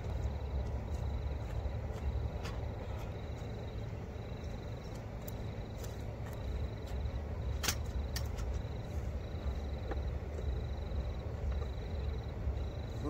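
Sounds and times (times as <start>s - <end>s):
cricket trilling: 0.0s - 13.0s
camping gear clicks and knocks: 4.8s - 8.8s.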